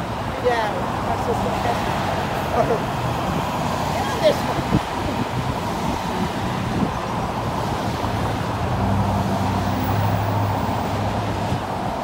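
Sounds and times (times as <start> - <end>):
road traffic rushing past: 0.0 - 12.0
wind on microphone: 3.1 - 12.0.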